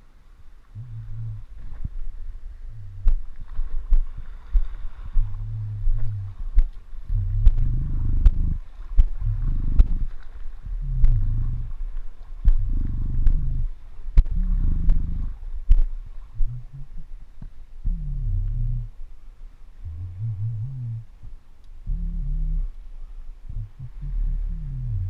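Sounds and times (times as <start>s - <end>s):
wind buffeting microphone: 0.8s - 19.0s.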